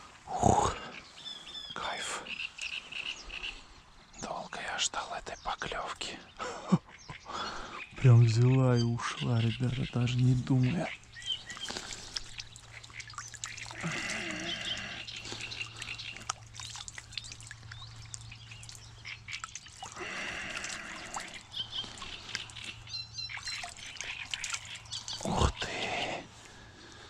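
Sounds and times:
animal calling: 6.9s - 26.3s
water dripping and trickling: 9.5s - 25.8s
small clicks and splashes: 10.8s - 25.4s.

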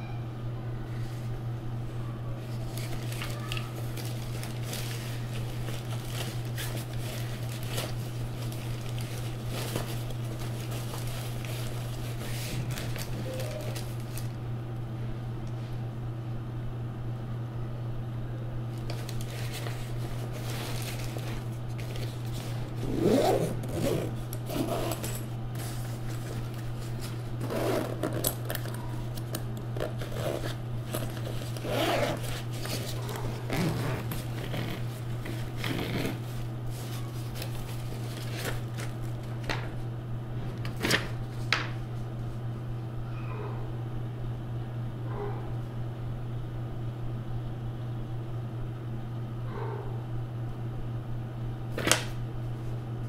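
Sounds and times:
steady low hum: 0.0s - 53.0s
hands handling packaging: 2.4s - 14.4s, 18.8s - 39.8s.

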